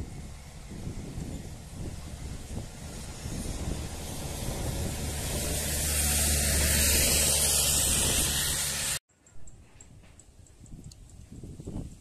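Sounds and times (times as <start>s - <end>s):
jet engines rushing: 0.0s - 9.0s.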